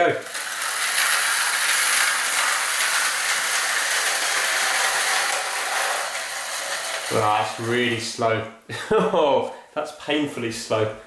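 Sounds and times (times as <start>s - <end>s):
clockwork toy cars whirring: 0.0s - 8.1s.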